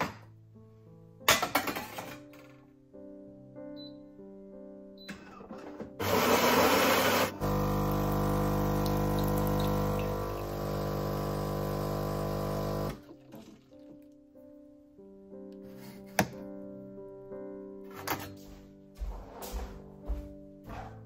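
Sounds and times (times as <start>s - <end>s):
coffee grinder grinding beans: 6.0s - 13.0s
brewing pump humming: 6.0s - 13.6s
coffee pouring into cup: 7.4s - 14.0s.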